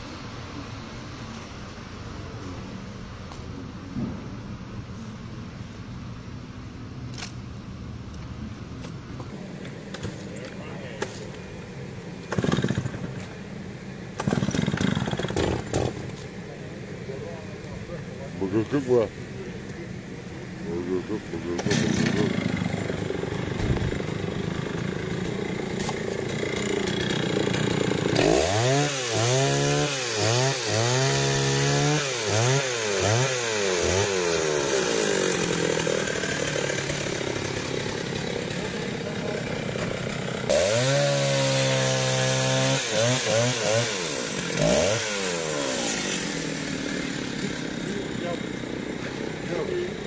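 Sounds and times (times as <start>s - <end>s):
chainsaw revving: 12.3s - 13.3s, 14.2s - 16.2s, 20.6s - 50.0s.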